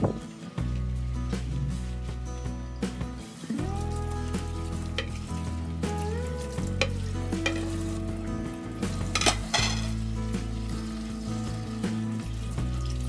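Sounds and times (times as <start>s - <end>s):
background music with bass: 0.0s - 13.0s
tap water running into sink: 6.4s - 13.0s
crockery and cutlery clinking: 9.2s - 10.0s.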